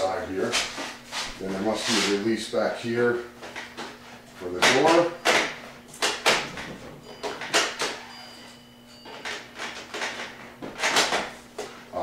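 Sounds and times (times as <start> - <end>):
knocks and rattles of computer case door: 4.7 - 8.0.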